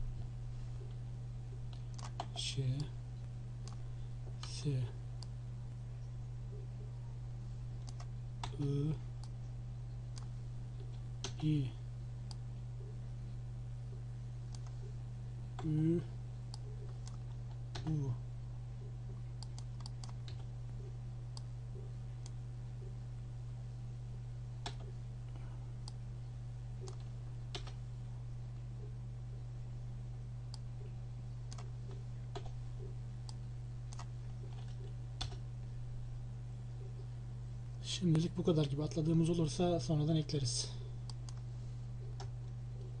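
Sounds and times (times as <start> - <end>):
steady low hum: 0.0 - 43.0
keyboard typing clicks: 1.7 - 2.9, 7.8 - 8.6, 19.1 - 20.5, 31.5 - 31.7, 32.3 - 35.4.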